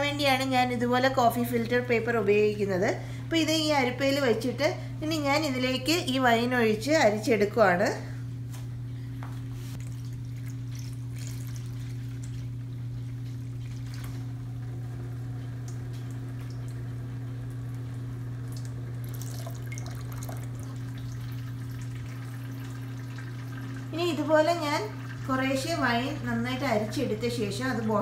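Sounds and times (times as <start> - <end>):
low hum: 0.0 - 28.0
wine trickling through filter: 9.7 - 28.0.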